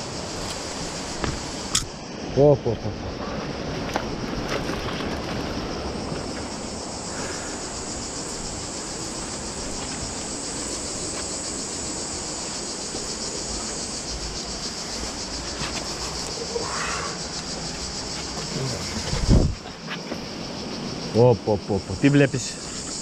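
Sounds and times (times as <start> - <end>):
high pulsing insect buzz: 0.0 - 23.0
wind rumble on microphone: 18.7 - 19.7.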